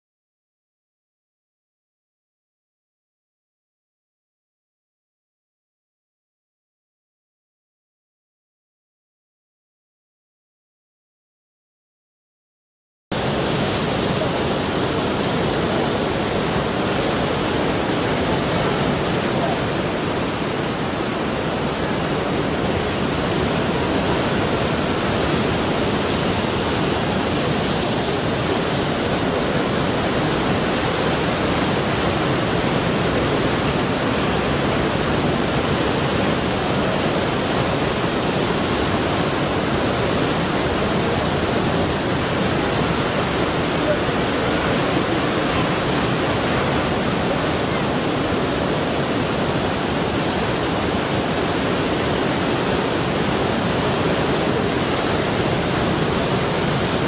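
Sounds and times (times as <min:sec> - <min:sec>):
sea surf breaking over rocks: 0:13.2 - 0:57.0.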